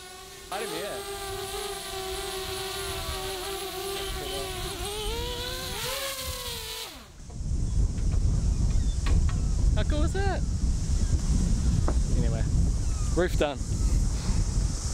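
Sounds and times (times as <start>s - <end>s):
drone propellers buzzing whine: 0.0s - 10.0s
wind buffeting microphone: 0.8s - 14.9s.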